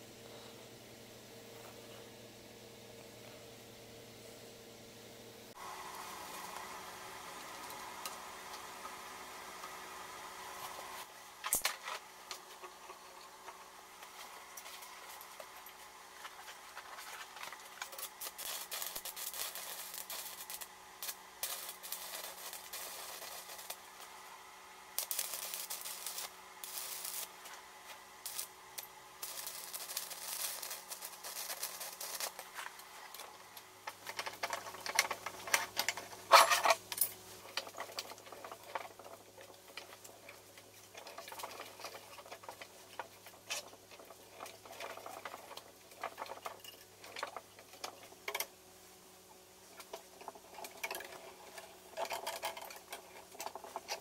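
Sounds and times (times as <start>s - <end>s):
electric arc welding: 5.6s - 38.7s.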